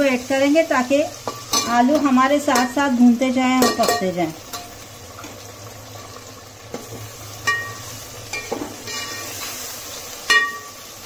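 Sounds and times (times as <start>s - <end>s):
onions sizzling in hot oil: 0.0s - 11.0s
metal spoon clinking against pot: 10.3s - 10.7s.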